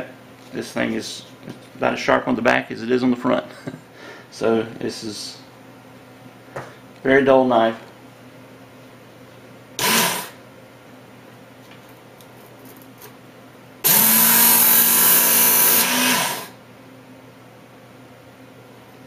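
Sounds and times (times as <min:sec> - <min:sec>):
belt sharpener motor grinding blade: 0:09.8 - 0:10.4, 0:13.8 - 0:16.6.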